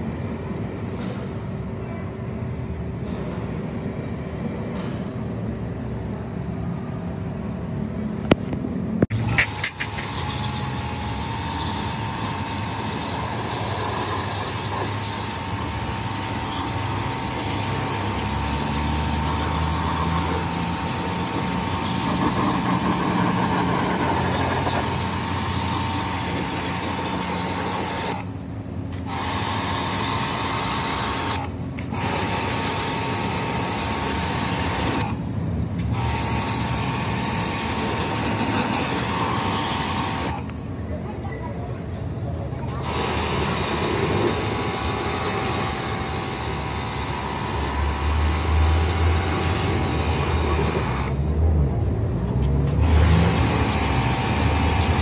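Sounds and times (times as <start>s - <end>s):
pressure washer jetting water: 9.1s - 28.3s, 28.9s - 35.2s, 35.8s - 40.5s, 42.7s - 51.3s, 52.6s - 55.0s.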